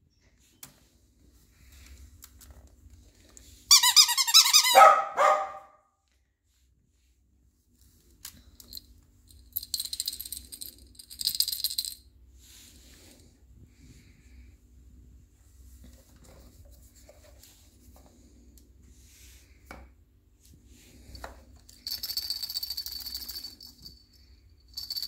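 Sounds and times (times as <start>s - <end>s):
squeaky dog toy squeal: 3.7s - 5.6s.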